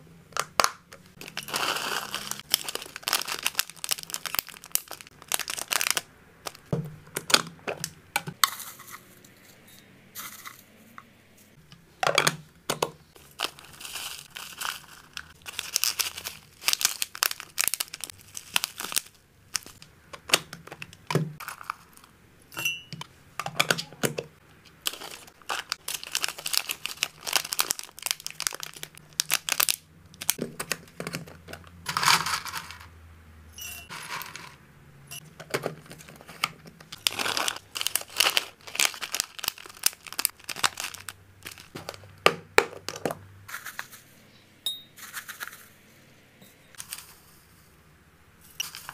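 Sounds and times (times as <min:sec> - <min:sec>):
plastic bags crinkling: 0:01.1 - 0:08.0, 0:13.2 - 0:19.8, 0:24.8 - 0:32.9, 0:35.2 - 0:43.2.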